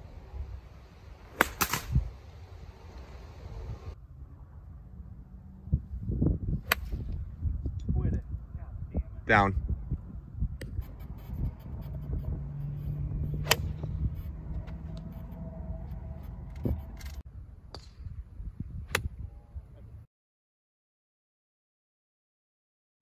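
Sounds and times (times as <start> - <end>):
wind rumbling on microphone: 0.0 - 20.1
golf clubs striking balls: 1.2 - 2.0, 10.6 - 18.2.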